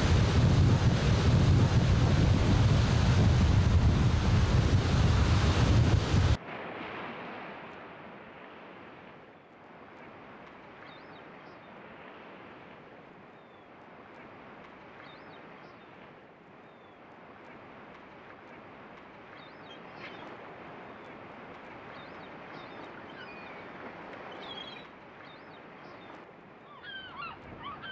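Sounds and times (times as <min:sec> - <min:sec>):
wind buffeting microphone: 0:00.0 - 0:07.4
surf rushing: 0:00.0 - 0:09.1.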